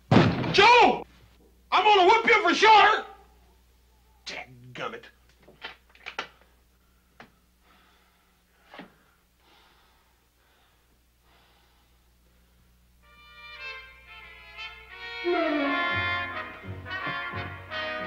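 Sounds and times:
brass music: 13.0s - 18.0s.

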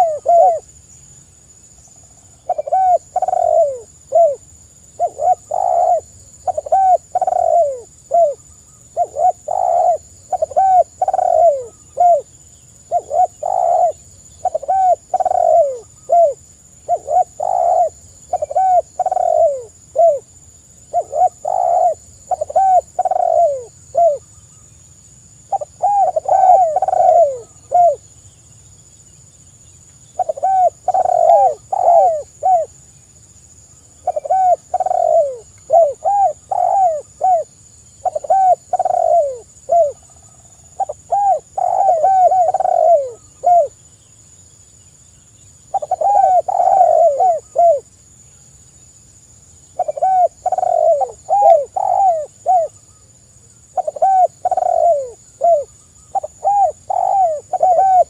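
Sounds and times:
dove cooing: 0.0s - 0.7s, 2.4s - 20.3s, 20.9s - 24.3s, 25.5s - 28.0s, 30.2s - 32.7s, 34.0s - 43.8s, 45.7s - 47.9s, 49.8s - 52.8s, 53.7s - 58.0s.

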